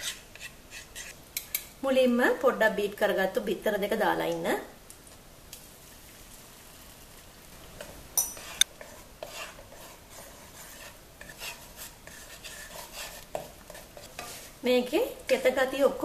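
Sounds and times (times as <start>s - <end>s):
wooden spatula scraping wok: 0.0s - 1.2s, 7.6s - 16.0s
light sizzle: 0.0s - 16.0s.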